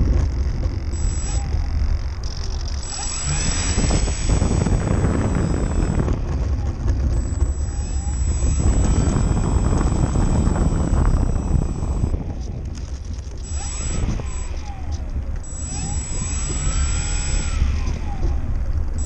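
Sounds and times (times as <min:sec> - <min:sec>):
model plane motor whining: 0:00.0 - 0:19.0
wind rumble on microphone: 0:00.0 - 0:19.0.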